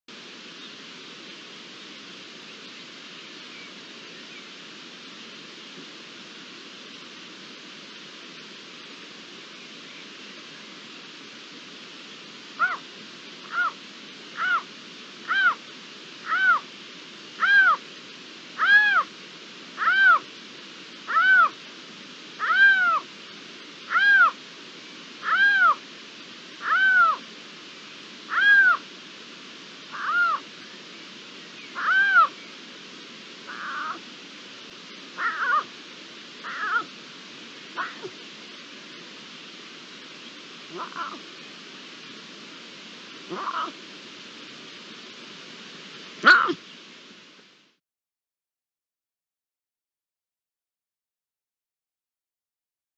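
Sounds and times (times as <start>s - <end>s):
lynx meow-like calls: 12.6s - 12.8s, 13.5s - 13.8s, 14.4s - 15.6s, 16.2s - 16.7s, 17.4s - 17.8s, 18.6s - 19.1s, 19.8s - 20.3s, 21.1s - 21.6s, 22.4s - 23.1s, 23.9s - 24.4s, 25.2s - 25.8s, 26.6s - 27.2s, 28.3s - 28.8s, 29.9s - 30.5s, 31.7s - 32.4s, 33.5s - 34.0s, 35.2s - 35.7s, 36.4s - 36.9s, 37.7s - 38.1s, 40.7s - 41.3s, 43.3s - 43.8s, 46.2s - 46.6s.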